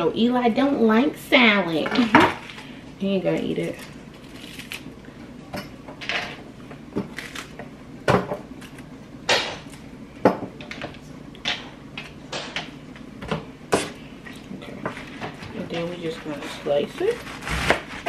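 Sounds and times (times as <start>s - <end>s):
lettuce leaves tearing: 3.7s - 4.9s, 7.1s - 7.6s, 17.2s - 18.0s.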